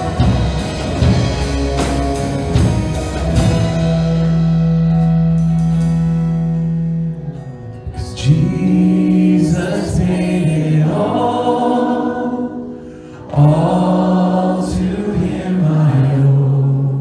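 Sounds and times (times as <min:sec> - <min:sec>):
guitar accompaniment: 0:00.0 - 0:17.0
voices singing a hymn: 0:08.2 - 0:17.0.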